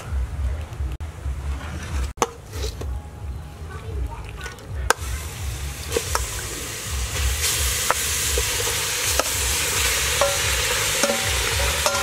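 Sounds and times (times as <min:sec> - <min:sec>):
meat sizzling in a hot pot: 0:04.9 - 0:12.0
metal spoon clinking on bowl: 0:11.0 - 0:12.0.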